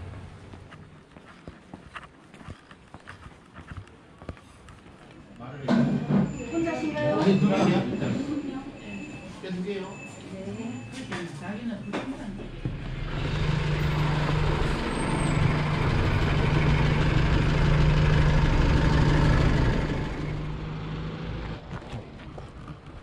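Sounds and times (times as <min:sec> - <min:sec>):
heavy vehicle engine humming: 0:12.3 - 0:23.0.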